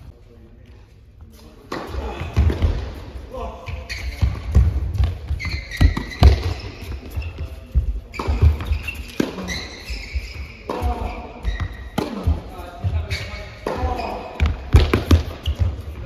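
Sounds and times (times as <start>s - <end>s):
tennis balls struck with rackets: 4.2s - 7.0s, 8.1s - 9.7s, 10.6s - 12.4s, 13.6s - 15.8s
tennis balls bouncing on court: 4.2s - 13.0s, 13.6s - 16.0s.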